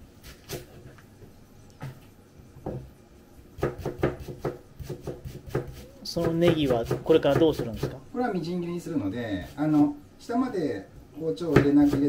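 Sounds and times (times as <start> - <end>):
knife tapping on cutting board: 3.6 - 8.0.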